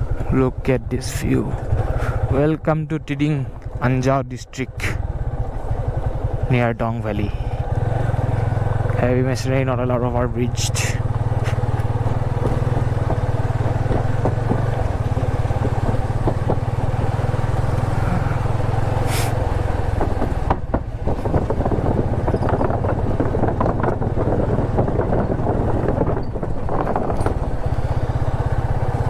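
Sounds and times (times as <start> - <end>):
motorcycle engine running: 0.0 - 29.0
wooden boards knocking under tyres: 12.2 - 17.2.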